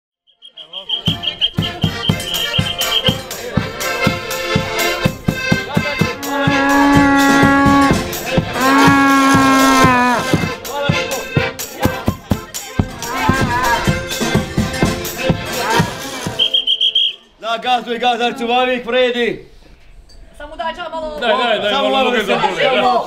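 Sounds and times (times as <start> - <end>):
animal horn blasts: 0.4 - 3.2, 5.7 - 10.5
bass drum beat: 1.0 - 16.5.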